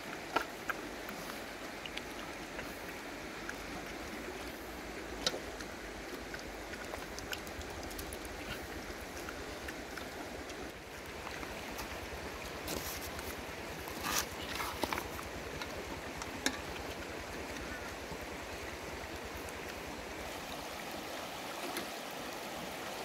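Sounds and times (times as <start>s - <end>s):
puppies chewing and lapping: 0.0s - 20.6s.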